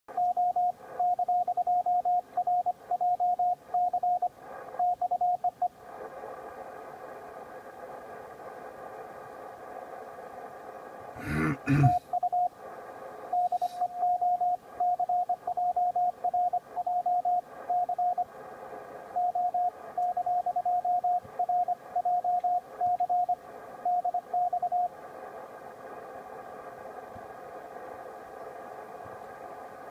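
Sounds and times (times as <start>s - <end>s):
radio band hiss: 4.3s - 14.9s, 16.6s - 20.0s, 24.7s - 29.9s.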